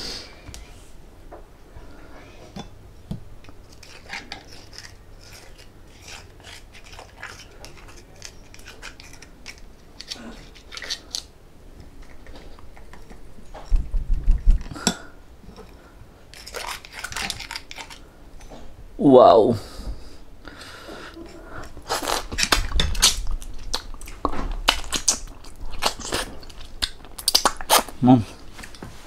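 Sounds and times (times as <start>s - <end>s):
loud low thumps: 13.7s - 14.8s.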